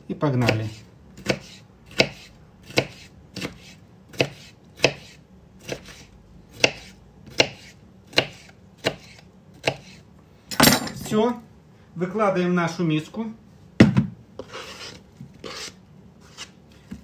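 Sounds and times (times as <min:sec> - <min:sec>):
knife chopping on plastic board: 0:00.4 - 0:10.0.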